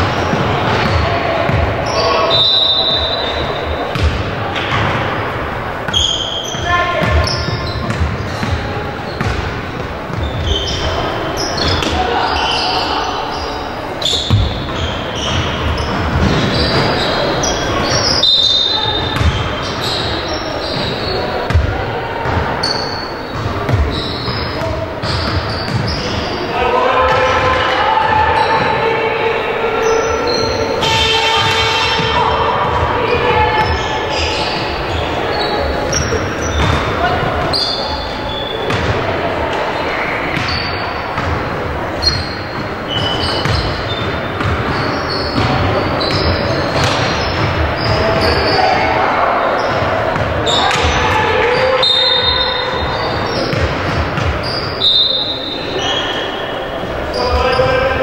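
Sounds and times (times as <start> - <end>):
basketball bouncing on court: 0.0 - 2.0, 2.9 - 5.2, 5.8 - 12.1, 14.0 - 26.4, 35.8 - 39.2, 40.2 - 48.9, 49.6 - 54.8
voices in a gym: 0.0 - 58.0
shoe squeak: 1.8 - 4.0, 5.9 - 9.4, 10.1 - 21.6, 22.2 - 26.5, 29.8 - 38.8, 39.8 - 41.3, 41.9 - 57.9
basketball bouncing on wooden floor: 5.9 - 9.5, 23.4 - 26.1, 43.4 - 48.4.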